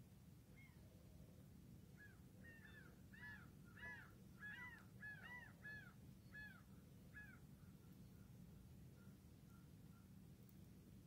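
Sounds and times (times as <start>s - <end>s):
bird calling faintly: 2.0s - 10.6s.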